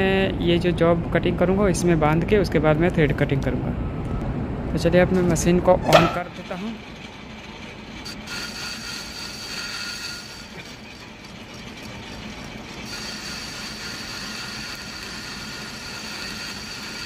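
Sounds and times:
metal lathe gears whirring: 0:05.9 - 0:17.0
tool bit cutting metal: 0:08.0 - 0:17.0.

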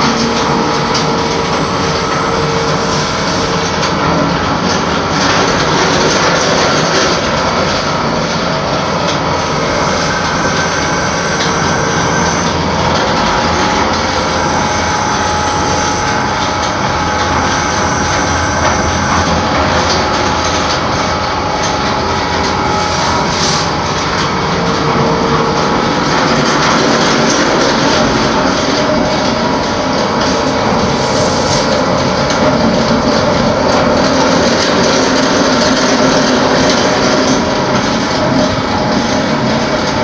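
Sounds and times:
machine rollers whirring: 0:00.0 - 0:40.0.

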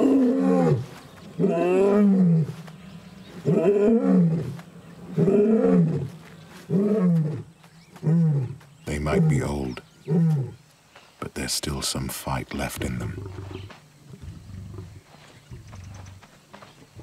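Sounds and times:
lion roaring: 0:00.0 - 0:00.8, 0:01.4 - 0:02.6, 0:03.4 - 0:06.1, 0:06.7 - 0:10.6.

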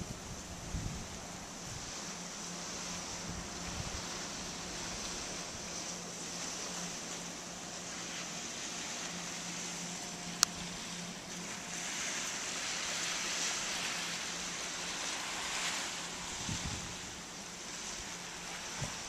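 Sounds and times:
wind buffeting microphone: 0:00.0 - 0:01.9, 0:16.2 - 0:17.2, 0:18.4 - 0:19.0
surf washing onto beach: 0:00.0 - 0:19.0.

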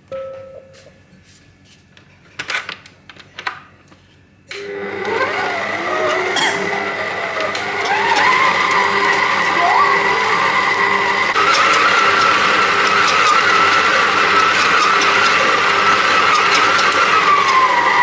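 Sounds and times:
stand mixer motor whining: 0:04.5 - 0:18.0.

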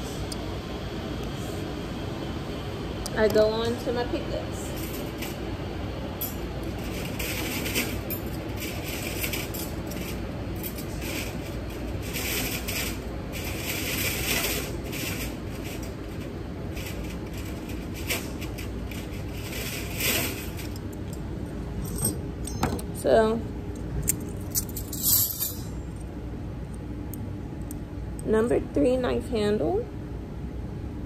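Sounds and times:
low room hum: 0:00.0 - 0:31.0
metal instruments clinking: 0:21.8 - 0:23.0, 0:24.0 - 0:26.0.

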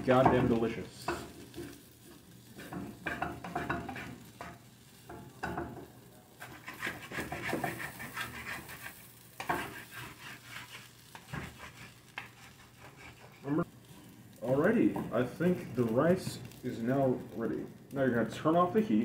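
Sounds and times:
rice sizzling: 0:00.0 - 0:19.0
spatula scraping frying pan: 0:00.1 - 0:05.7, 0:06.4 - 0:13.7
spatula tapping pan: 0:02.6 - 0:05.9, 0:09.4 - 0:09.9.

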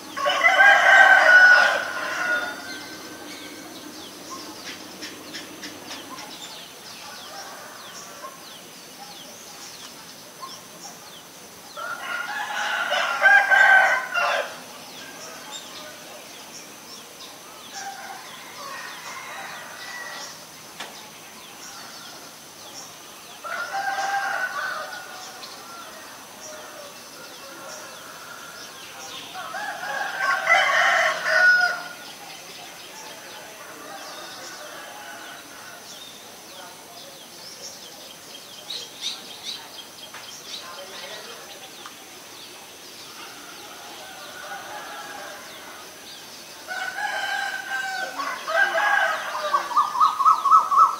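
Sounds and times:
roosters crowing: 0:00.0 - 0:08.6, 0:11.7 - 0:16.1, 0:17.7 - 0:20.7, 0:23.1 - 0:36.2, 0:42.3 - 0:50.9.

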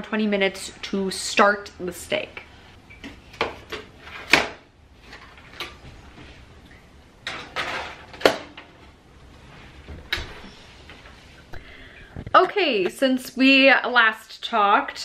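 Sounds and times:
metal baking tray scraping: 0:07.3 - 0:08.2.

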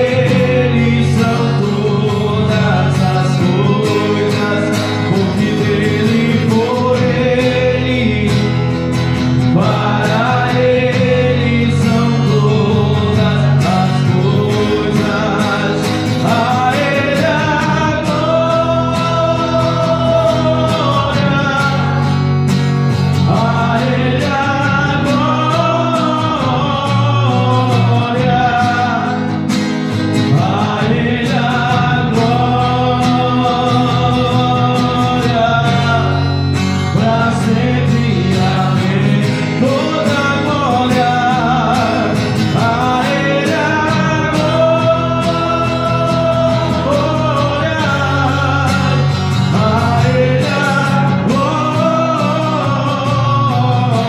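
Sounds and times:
acoustic guitar strumming: 0:00.0 - 0:54.0
man singing: 0:00.0 - 0:54.0.

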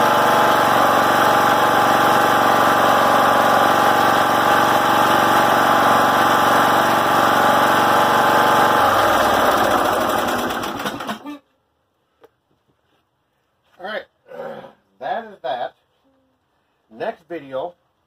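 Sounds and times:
riding mower engine running: 0:00.0 - 0:11.2.

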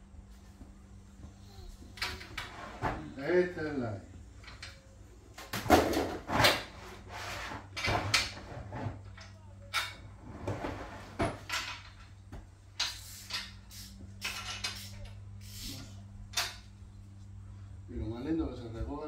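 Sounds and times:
steady low hum: 0:00.0 - 0:19.0
metal and plastic parts clattering: 0:11.2 - 0:12.2.

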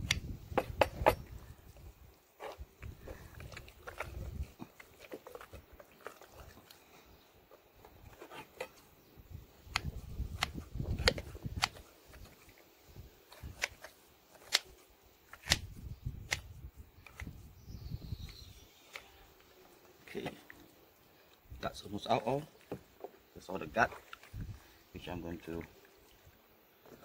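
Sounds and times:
scissors snipping: 0:09.7 - 0:11.8.

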